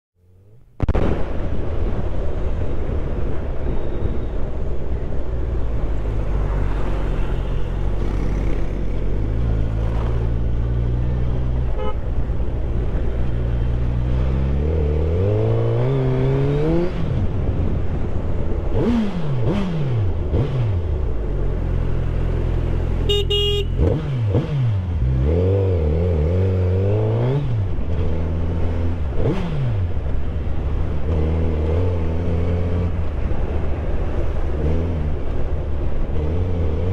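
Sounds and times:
vehicle horn toot: 11.7 - 12.1, 23.0 - 23.9
motorcycle engine revving: 13.4 - 17.4, 18.7 - 35.4
wind rush: 16.2 - 19.0.

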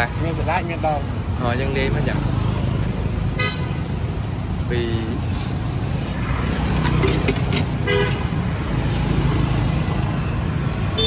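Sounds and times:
street traffic rumble: 0.0 - 11.0
car horn toot: 3.4 - 3.8.

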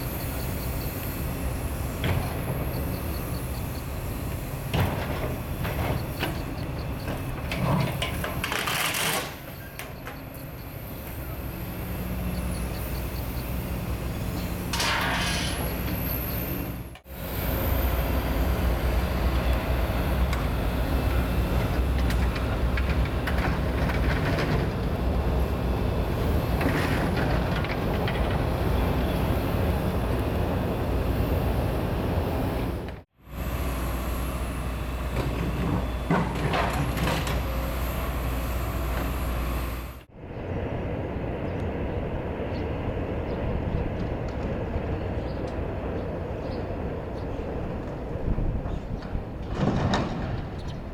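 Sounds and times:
excavator diesel engine running: 0.0 - 50.9.

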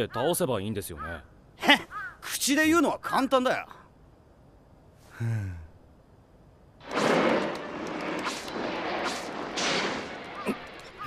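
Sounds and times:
video game combat crashes and blasts: 6.8 - 11.0.

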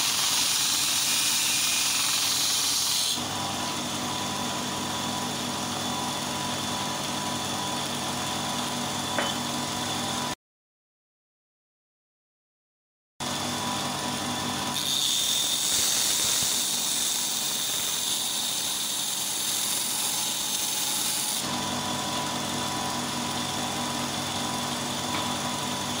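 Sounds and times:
electric motor humming: 13.2 - 26.0
steel grinding on belt: 14.7 - 23.0.

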